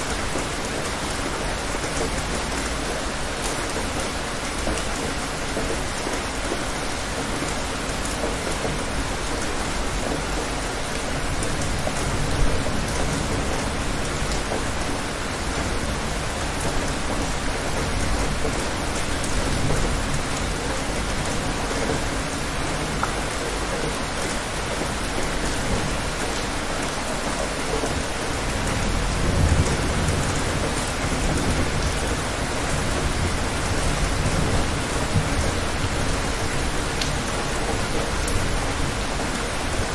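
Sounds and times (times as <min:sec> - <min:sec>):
steady rain: 0:00.0 - 0:39.9
thunder rumbling: 0:28.0 - 0:37.0.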